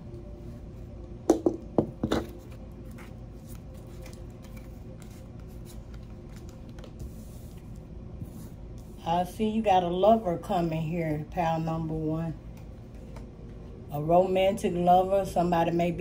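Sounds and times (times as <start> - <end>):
low room hum: 0.0 - 16.0
cards rustling: 2.2 - 7.7.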